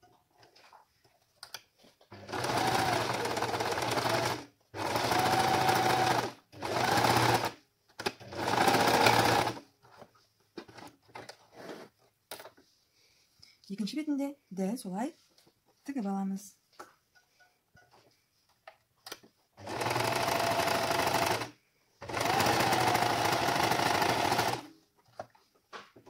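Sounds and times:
electric sewing machine stitching: 0:02.1 - 0:09.6, 0:19.6 - 0:24.7.

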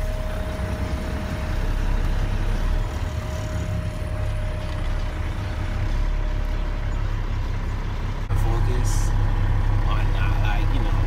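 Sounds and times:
diesel engine rumbling: 0:00.0 - 0:11.0.

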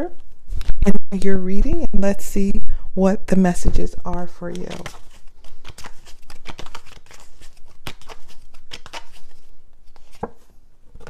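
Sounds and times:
cards being shuffled: 0:04.5 - 0:11.0.

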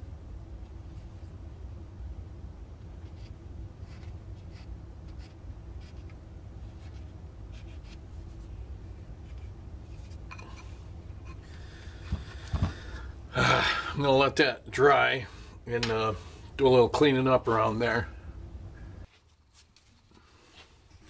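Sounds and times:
low hum: 0:00.0 - 0:19.1.

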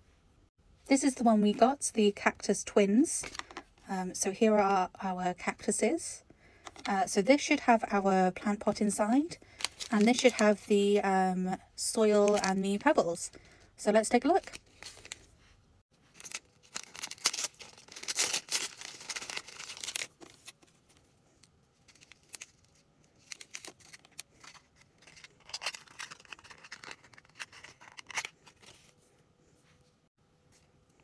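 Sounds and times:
plastic bag tearing and crinkling: 0:09.5 - 0:10.3, 0:16.1 - 0:20.6, 0:21.9 - 0:28.7.

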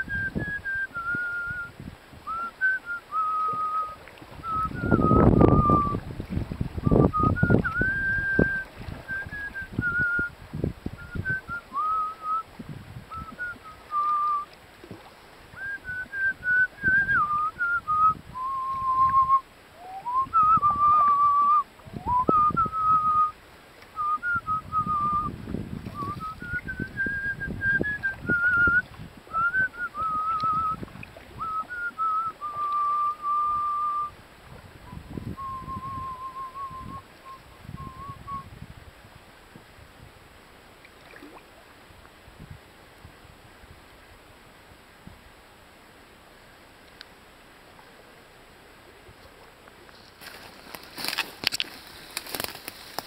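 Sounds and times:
person whistling a tune: 0:00.0 - 0:01.7, 0:02.3 - 0:06.0, 0:06.8 - 0:10.3, 0:11.0 - 0:12.5, 0:13.1 - 0:14.5, 0:15.6 - 0:23.4, 0:24.0 - 0:25.3, 0:25.9 - 0:30.8, 0:31.4 - 0:34.1, 0:34.9 - 0:38.5
low rumbling of wind: 0:00.0 - 0:53.0.

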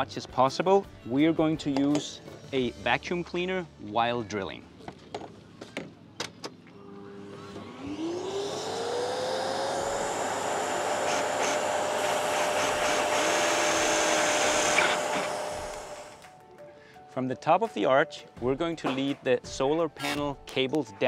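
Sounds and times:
vacuum cleaner whine: 0:06.7 - 0:16.2
cordless drill boring: 0:07.1 - 0:16.2.

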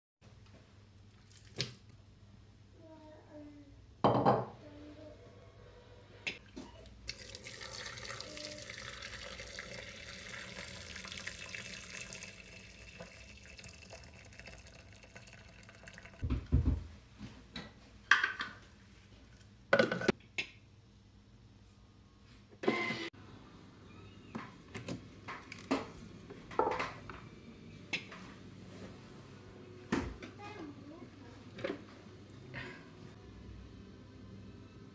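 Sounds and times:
water pouring into metal bowl: 0:07.1 - 0:16.2.

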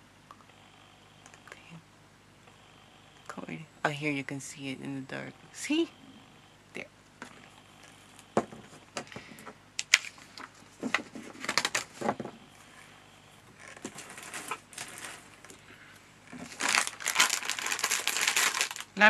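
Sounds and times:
paper rustling and crinkling: 0:09.8 - 0:12.8, 0:13.6 - 0:15.6, 0:16.3 - 0:19.0.

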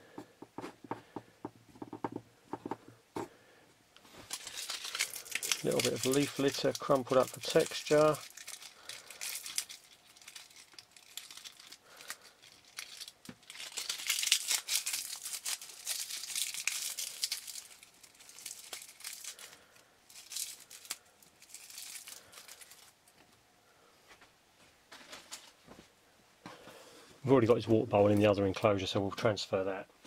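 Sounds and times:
dry leaves crackling: 0:04.2 - 0:22.9.

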